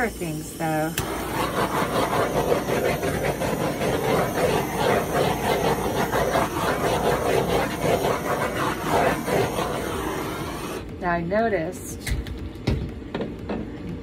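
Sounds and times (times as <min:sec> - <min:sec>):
torch flame rushing: 0:00.0 - 0:11.2.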